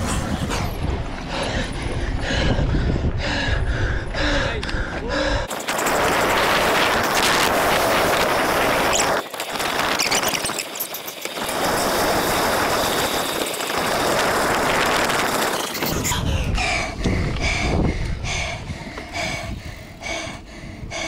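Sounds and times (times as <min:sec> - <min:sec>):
wind hissing on microphone: 0:00.0 - 0:21.0.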